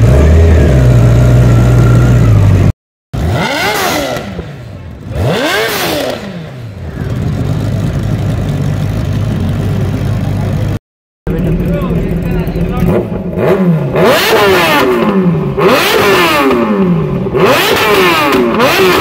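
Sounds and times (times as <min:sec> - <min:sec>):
motorcycle engine idling and revving: 0:00.0 - 0:19.0.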